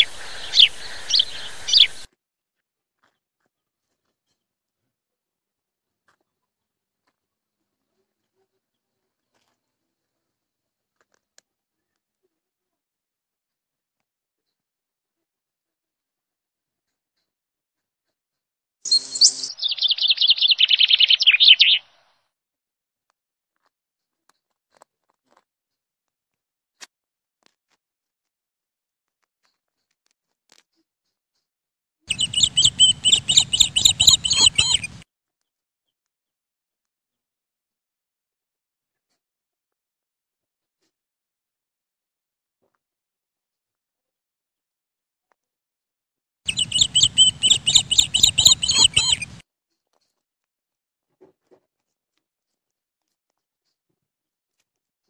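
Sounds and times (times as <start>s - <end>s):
low rustle: 0.0s - 2.0s
rat squeaking: 0.0s - 2.0s, 18.9s - 21.8s, 32.1s - 35.0s, 46.5s - 49.4s.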